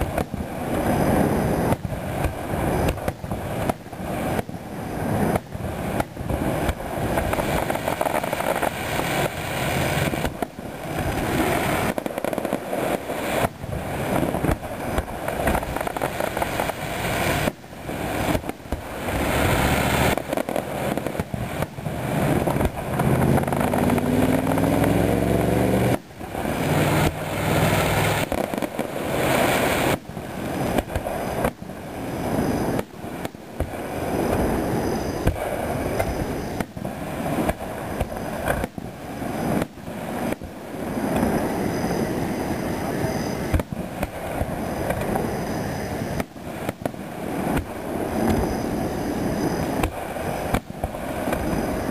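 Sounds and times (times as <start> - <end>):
fireworks bangs: 0.0 - 51.9
fireworks crackle and rumble: 0.0 - 51.9
rising whine: 22.8 - 26.0.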